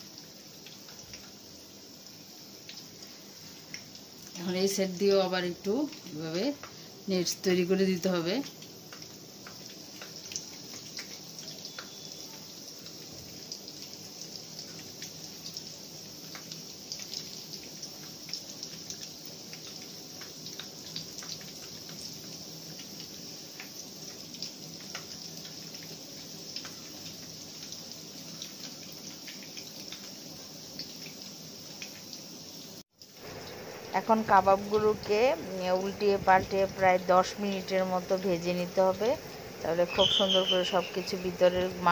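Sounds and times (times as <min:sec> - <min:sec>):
meat sizzling in hot oil: 0:00.0 - 0:41.9
oil popping and crackling: 0:08.0 - 0:32.2.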